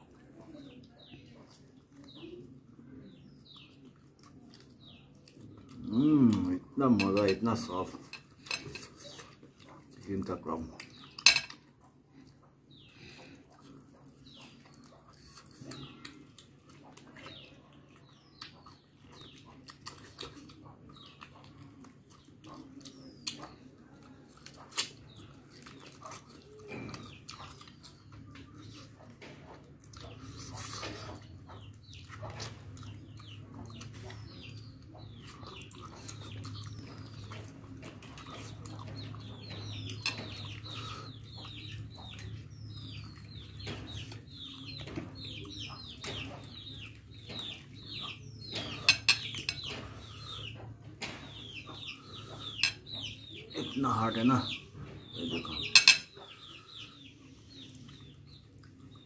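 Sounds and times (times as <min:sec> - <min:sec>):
chicks peeping: 0:00.0 - 0:08.1, 0:11.8 - 0:59.0
wet mouth eating sounds: 0:00.0 - 0:53.8, 0:55.0 - 0:59.0.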